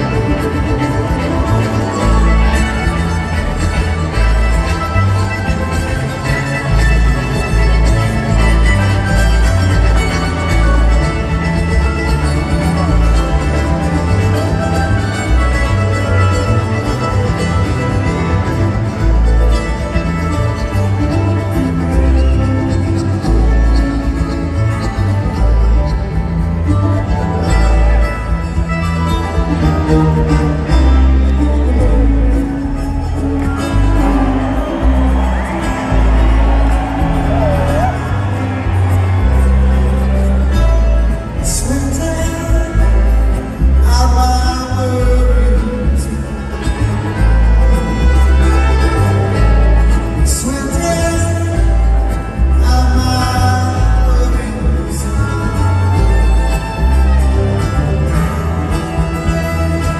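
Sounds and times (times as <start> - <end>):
acoustic guitar: 0.0 - 59.9
mandolin: 0.0 - 59.9
upright bass: 0.0 - 59.9
man singing: 41.3 - 46.8, 50.2 - 56.0.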